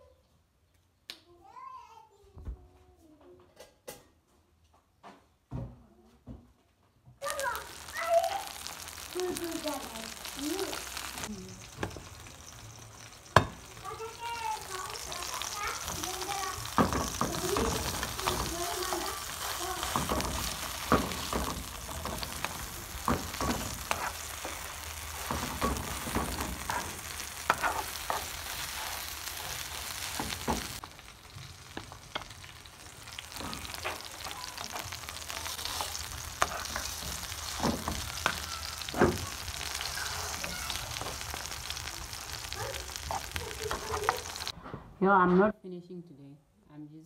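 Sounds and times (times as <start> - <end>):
meat patties sizzling in oil: 7.2 - 44.6
metal spoon scraping a pan: 15.3 - 30.7, 33.3 - 40.4.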